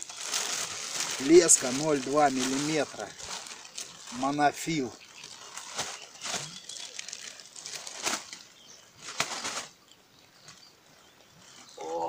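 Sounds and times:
rustling and flapping handling noise: 0:00.2 - 0:09.8.

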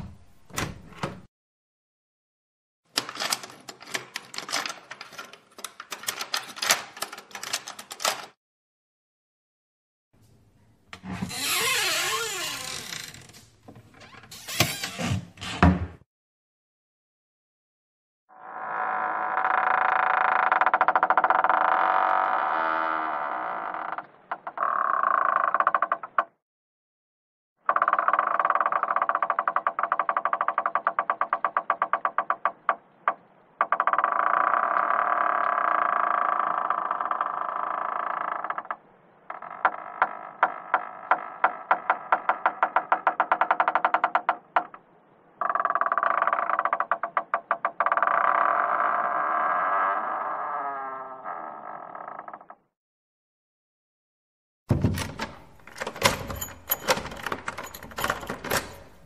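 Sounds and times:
door hinges creaking: 0:00.0 - 0:01.3, 0:03.0 - 0:08.4, 0:10.9 - 0:16.0, 0:18.4 - 0:26.4, 0:27.7 - 0:52.8, 0:54.7 - 0:59.0
door scraping and squeaking: 0:11.0 - 0:16.0, 0:54.7 - 0:59.0
door knocking against frame: 0:54.7 - 0:55.4.

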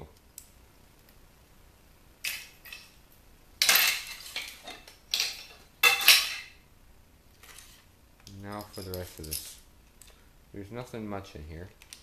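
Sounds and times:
steel scrap parts clattering: 0:03.6 - 0:06.6.

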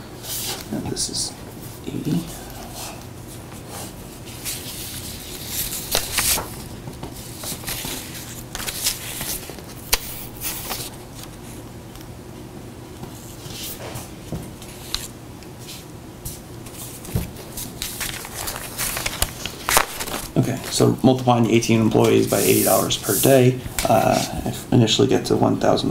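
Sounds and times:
low steady hum: 0:00.0 - 0:25.9
paper rustling: 0:03.6 - 0:11.4, 0:16.7 - 0:24.4.

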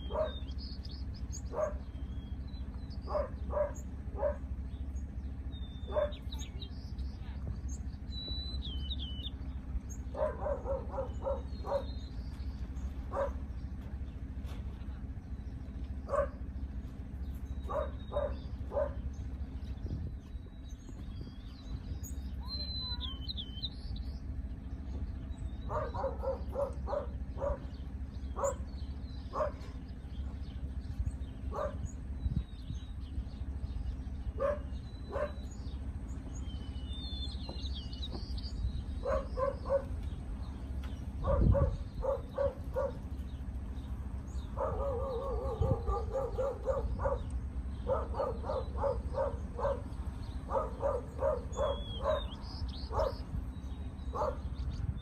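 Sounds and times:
dog barking: 0:00.0 - 0:00.5, 0:01.5 - 0:01.9, 0:03.0 - 0:04.5, 0:05.8 - 0:06.4, 0:10.1 - 0:12.0, 0:13.1 - 0:13.5, 0:16.0 - 0:16.5, 0:17.7 - 0:19.0, 0:25.7 - 0:28.7, 0:29.3 - 0:29.8, 0:31.5 - 0:31.9, 0:34.4 - 0:35.5, 0:39.0 - 0:40.0, 0:41.2 - 0:43.1, 0:44.5 - 0:53.2, 0:54.1 - 0:54.5
birds chirping: 0:00.0 - 0:55.0.

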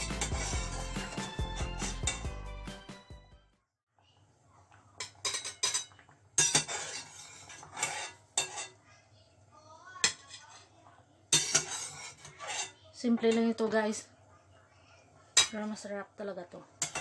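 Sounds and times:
metal spoon scraping a steel pot: 0:00.0 - 0:02.3, 0:05.2 - 0:08.8, 0:11.3 - 0:13.6.

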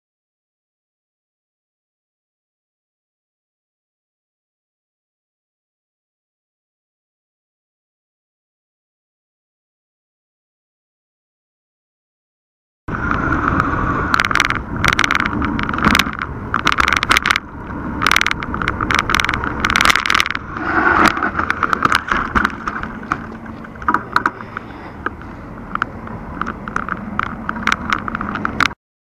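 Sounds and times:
camera rattling on a bike: 0:12.9 - 0:28.8
road noise rushing: 0:12.9 - 0:28.8
sharp clicks: 0:13.1 - 0:28.8.

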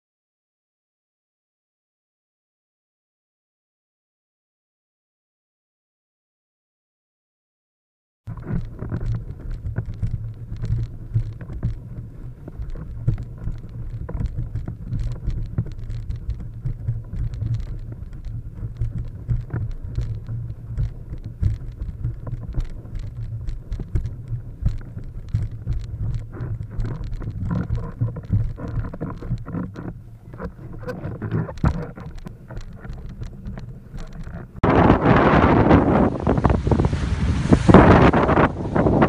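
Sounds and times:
wind buffeting microphone: 0:08.3 - 0:39.0.

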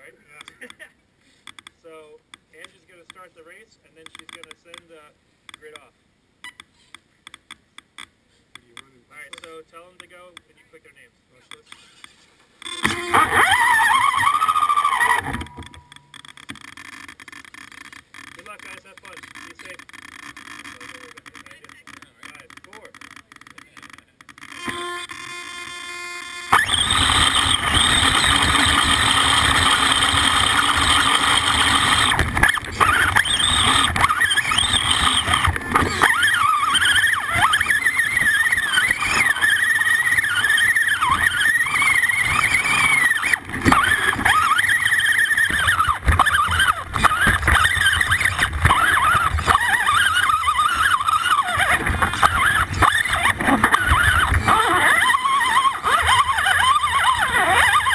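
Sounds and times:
electric motor and gears whining: 0:11.7 - 0:57.9
chassis and tyres rattling on rocks: 0:26.6 - 0:57.9.

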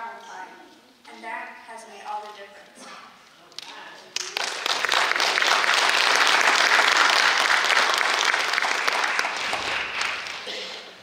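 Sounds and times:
audience applause: 0:04.2 - 0:10.7.

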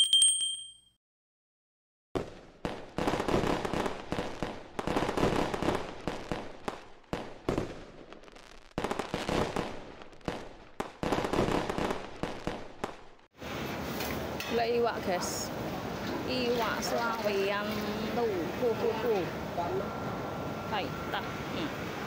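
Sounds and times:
fireworks bursting and crackling: 0:02.2 - 0:14.4.

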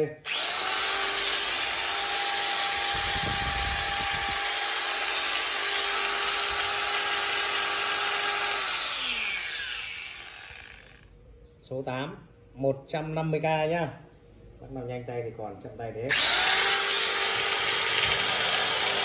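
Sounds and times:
power tool motor whining: 0:00.2 - 0:11.0, 0:16.1 - 0:19.0.

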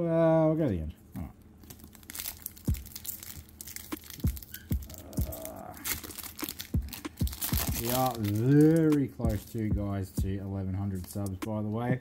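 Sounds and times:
foil wrapper tearing and crinkling: 0:01.6 - 0:09.7.

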